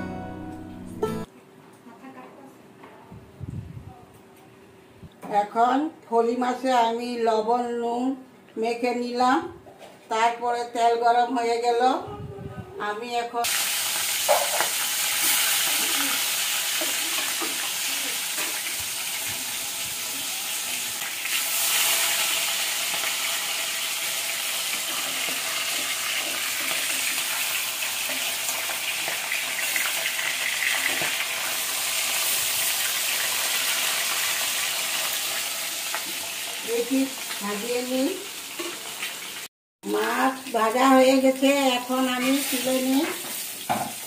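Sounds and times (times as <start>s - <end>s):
fish sizzling in hot oil: 13.4s - 39.5s, 40.2s - 44.0s.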